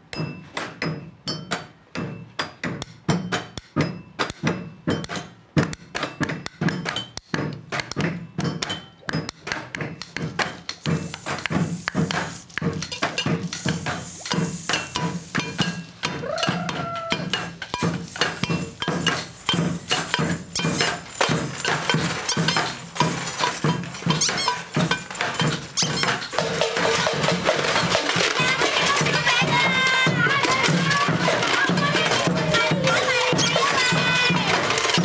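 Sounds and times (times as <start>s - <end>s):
knocks and taps on household objects: 0.2s - 29.4s
clinking glass: 8.4s - 9.4s, 10.5s - 26.5s
steady high hiss: 10.1s - 27.9s.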